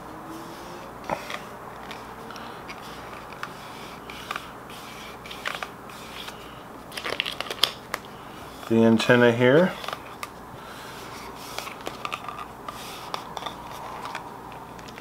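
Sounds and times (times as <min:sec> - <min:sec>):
vinyl film crackling: 0:05.1 - 0:08.8.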